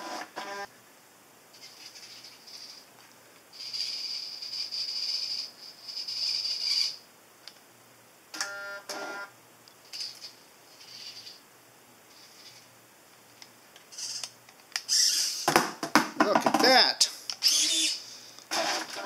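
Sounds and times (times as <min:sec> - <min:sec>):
servo motors whirring: 0:14.9 - 0:15.4, 0:17.4 - 0:18.0.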